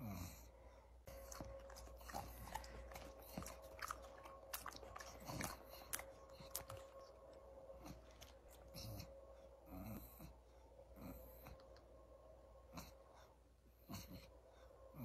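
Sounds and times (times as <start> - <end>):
dog chewing mouth clicks: 1.1 - 7.1.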